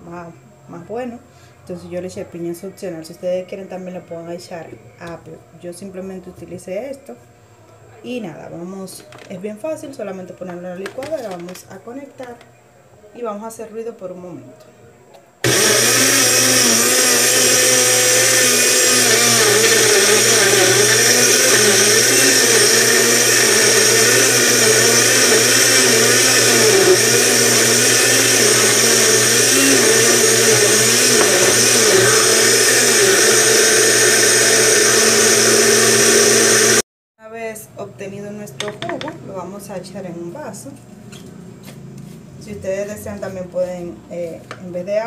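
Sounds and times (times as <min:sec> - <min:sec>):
blender running: 0:15.4 - 0:36.8.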